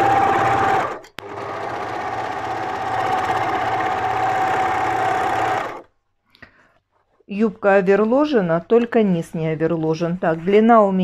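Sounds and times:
overlock sewing machine running: 0:00.0 - 0:05.9.

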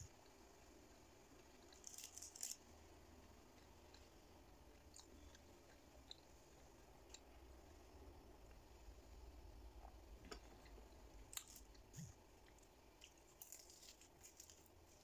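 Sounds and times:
crisp crackle of food: 0:01.6 - 0:02.8, 0:10.4 - 0:15.0
faint chewing clicks: 0:03.3 - 0:07.4.

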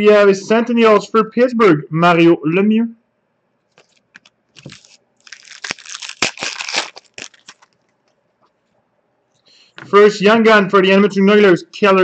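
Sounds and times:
trading cards shuffling: 0:03.7 - 0:08.6.

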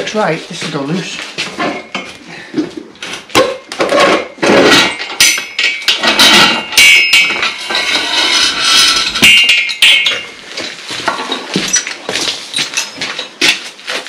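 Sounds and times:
metal-on-metal clangs: 0:03.1 - 0:13.7.

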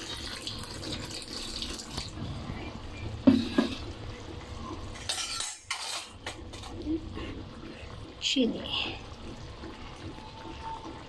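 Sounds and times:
water pouring into wok: 0:00.0 - 0:02.4.

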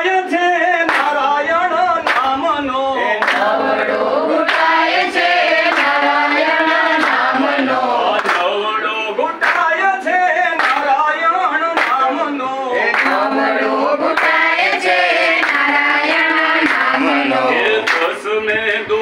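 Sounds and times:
group singing: 0:00.0 - 0:19.0
hand claps: 0:00.8 - 0:01.4, 0:02.0 - 0:02.5, 0:03.2 - 0:03.7, 0:04.4 - 0:08.8, 0:09.4 - 0:09.9, 0:10.5 - 0:18.3.

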